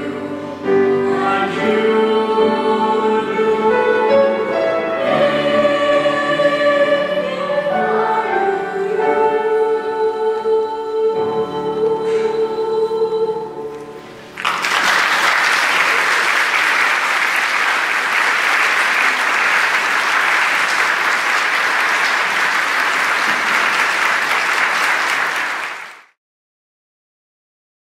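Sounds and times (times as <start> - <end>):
choir and piano chord: 0.0 - 14.7
audience applauding: 14.3 - 26.2.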